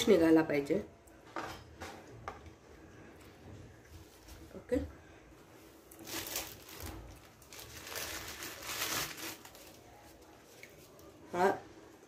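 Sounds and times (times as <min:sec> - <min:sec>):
leaves and paper towel crinkling: 0:05.9 - 0:11.1.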